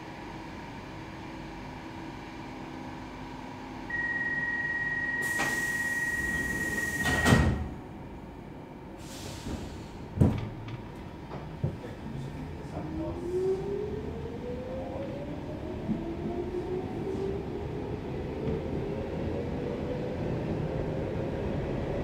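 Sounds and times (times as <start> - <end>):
pneumatic sliding doors hissing: 5.2 - 7.6, 9.0 - 10.0
doors shutting with a bang: 7.0 - 7.8.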